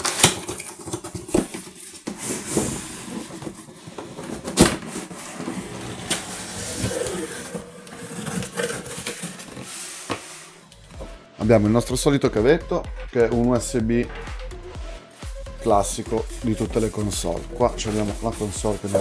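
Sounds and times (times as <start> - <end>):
cardboard flaps scraping and rustling: 0.0 - 10.6, 16.3 - 19.0.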